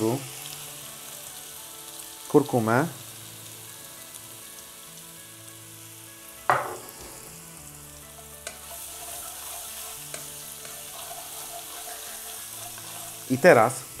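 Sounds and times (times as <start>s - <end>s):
spices sizzling in hot oil: 0.0s - 14.0s
wooden spatula stirring pan: 8.4s - 14.0s.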